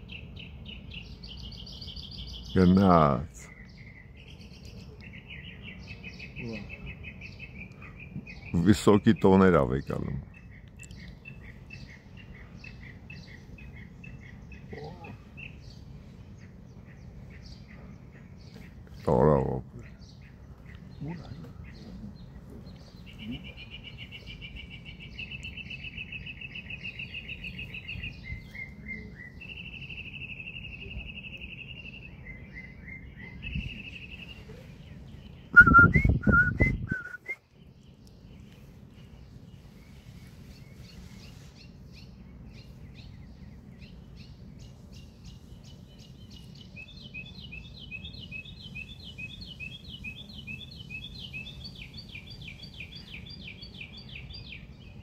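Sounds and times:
songbirds singing: 0.0s - 55.0s
short whistle-like notes: 35.6s - 37.4s.

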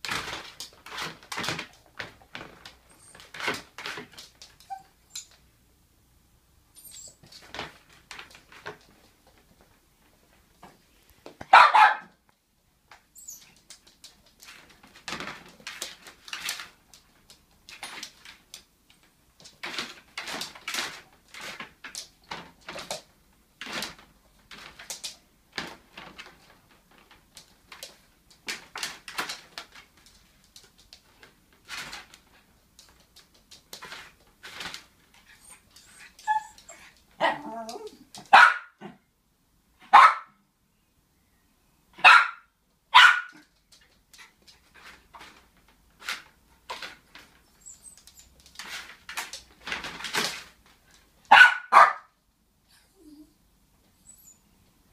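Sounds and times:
dog whining: 4.6s - 5.3s, 35.2s - 38.1s, 52.7s - 53.4s, 54.0s - 54.5s
small dog barking and yipping: 11.4s - 12.1s, 35.3s - 39.0s, 39.8s - 40.4s, 42.0s - 43.4s, 51.3s - 52.2s.

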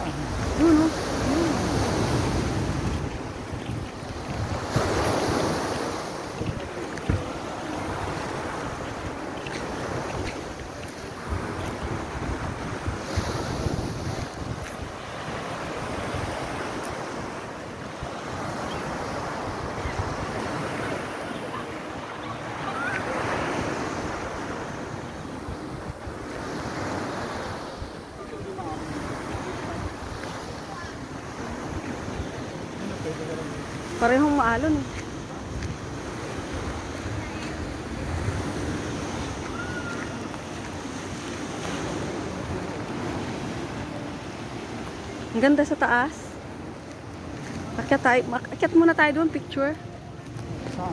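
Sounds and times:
wind buffeting microphone: 0.0s - 17.2s
sea waves washing ashore: 0.0s - 50.9s.

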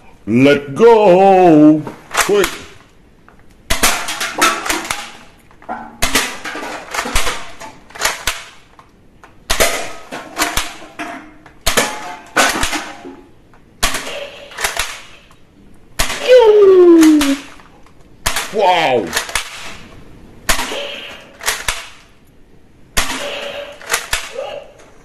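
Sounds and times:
toy guns firing bursts: 6.0s - 8.6s, 13.8s - 15.3s, 20.5s - 22.1s, 23.0s - 24.5s.

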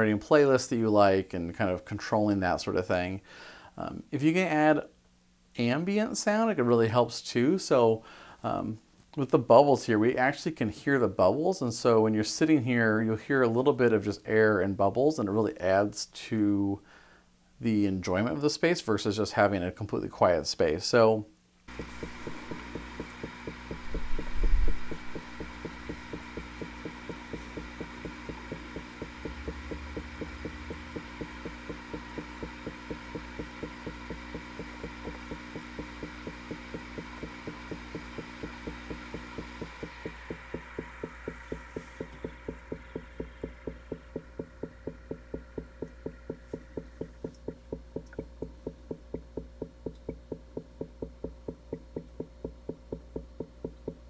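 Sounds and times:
steady low hum: 21.6s - 54.0s
air bubbling through water: 21.7s - 51.0s
water gurgle: 21.7s - 53.5s.

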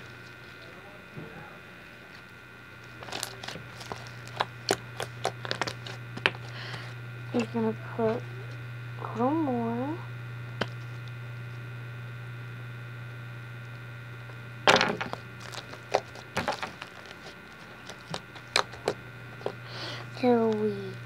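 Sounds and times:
electrical hum: 0.0s - 21.0s
slime clicking and popping: 3.0s - 6.5s, 17.8s - 19.0s.

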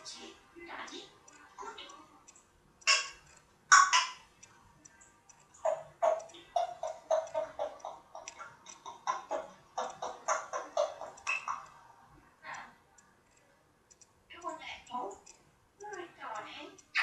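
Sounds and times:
parrot babbling clicky syllables: 0.2s - 2.0s, 2.8s - 4.2s, 5.6s - 11.8s, 14.3s - 17.0s.

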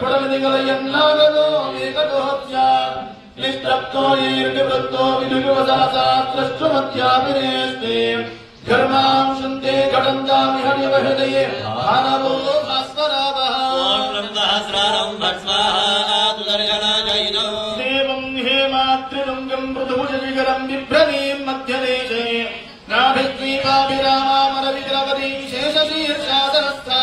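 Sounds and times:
men chanting into microphones: 0.0s - 27.0s.

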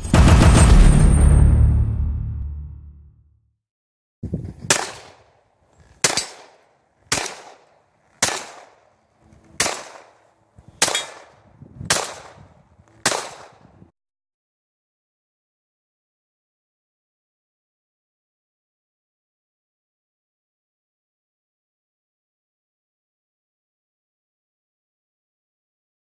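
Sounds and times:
pistol shots: 4.7s - 5.4s, 6.0s - 9.0s, 9.6s - 10.2s, 10.8s - 13.7s.

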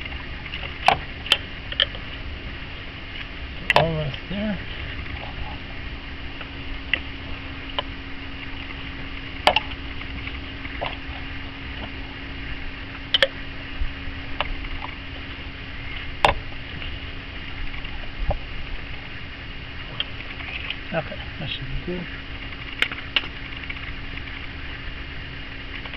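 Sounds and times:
steady low hum: 0.0s - 25.9s.

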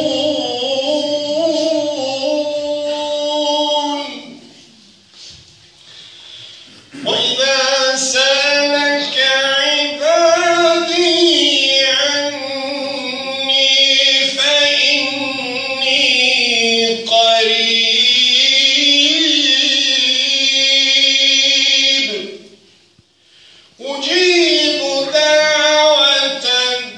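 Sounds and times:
man chanting recitation: 0.0s - 4.7s, 6.8s - 22.6s, 23.8s - 26.9s.

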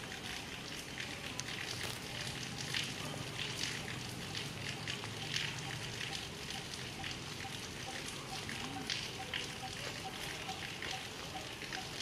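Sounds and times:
soft crackling and rustling: 0.0s - 5.5s.

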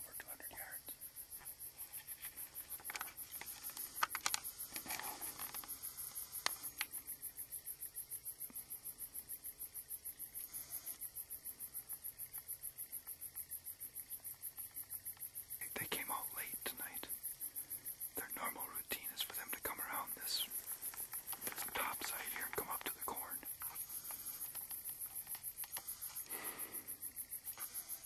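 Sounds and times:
cricket chirping: 0.0s - 28.0s.

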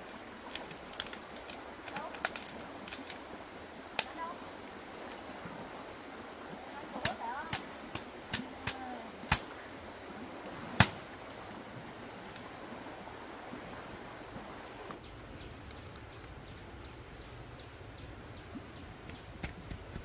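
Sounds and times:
background hiss: 0.0s - 20.0s
high-pitched whine: 0.0s - 20.0s
small ticks: 0.4s - 3.2s, 18.5s - 20.0s.

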